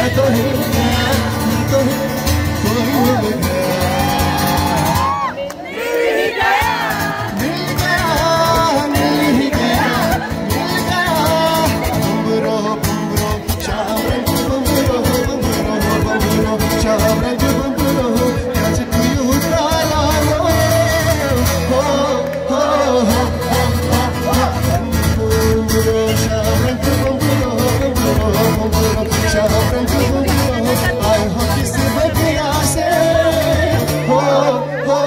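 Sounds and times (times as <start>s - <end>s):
acoustic guitar strumming: 0.0s - 5.2s, 6.5s - 35.0s
bass: 0.0s - 5.3s, 6.8s - 35.0s
person singing: 6.6s - 35.0s.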